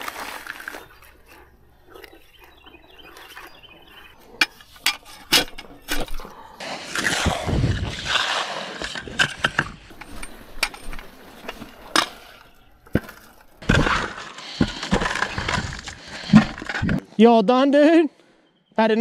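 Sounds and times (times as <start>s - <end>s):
concrete scraped from plastic bucket: 4.7s - 17.0s.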